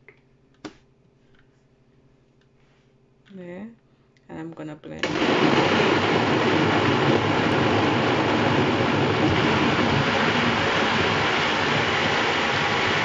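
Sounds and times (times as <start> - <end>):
blender running: 5.0 - 13.0.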